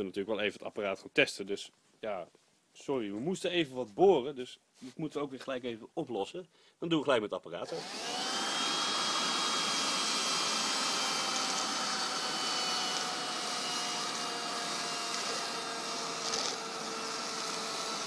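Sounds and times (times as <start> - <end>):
handheld vacuum motor whine: 7.7 - 18.0.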